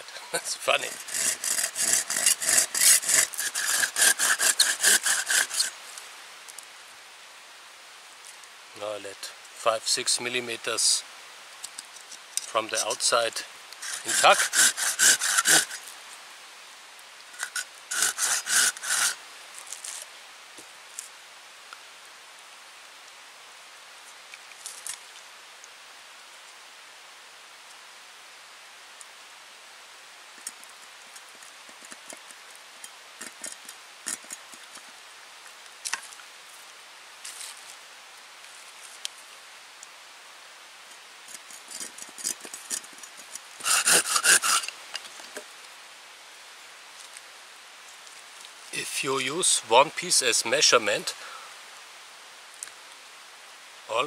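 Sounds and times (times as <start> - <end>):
hand saw cutting wood: 0.4 - 5.8, 12.4 - 13.2, 13.8 - 15.9, 17.4 - 19.2, 33.2 - 34.9, 41.3 - 44.8
wooden staves clicking: 13.8 - 15.8, 41.3 - 45.4.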